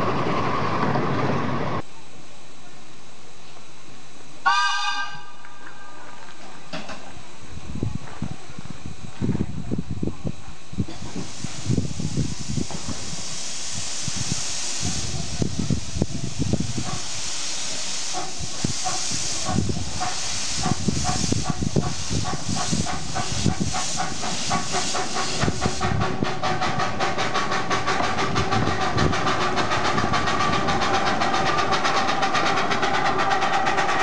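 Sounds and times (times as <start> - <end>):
steam hiss: 10.8 - 34.0
steam locomotive exhaust chuffs: 10.8 - 34.0
wheels clattering: 26.5 - 34.0.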